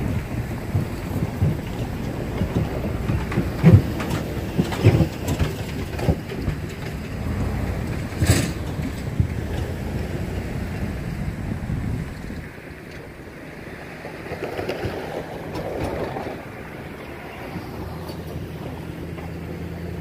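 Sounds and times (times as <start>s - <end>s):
distant freight train rumble: 0.0s - 20.0s
wind buffeting microphone: 0.0s - 20.0s.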